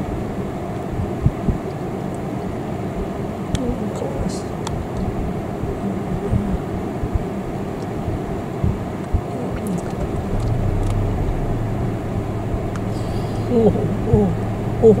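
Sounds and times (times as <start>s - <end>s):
steady low hum: 0.0s - 15.0s
vehicle engine rumble: 5.8s - 15.0s.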